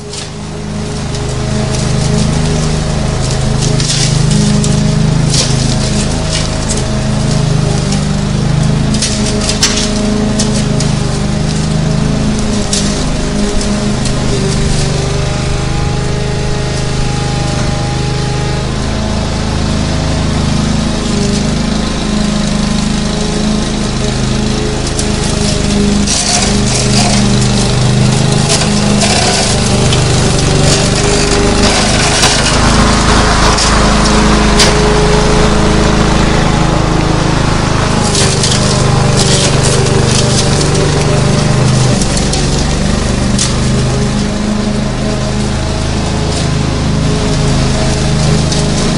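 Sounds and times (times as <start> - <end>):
lawn mower engine running: 0.0 - 48.9
crackling cutting noise: 1.2 - 8.0, 8.6 - 15.3, 24.8 - 43.9.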